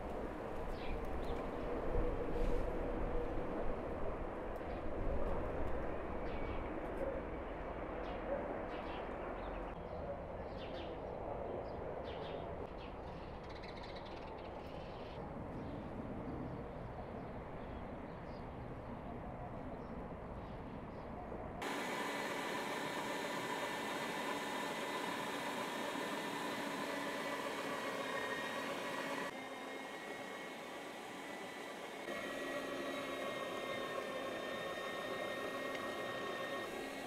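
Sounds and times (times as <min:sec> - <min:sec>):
outdoor rural background noise: 0:00.0 - 0:37.0.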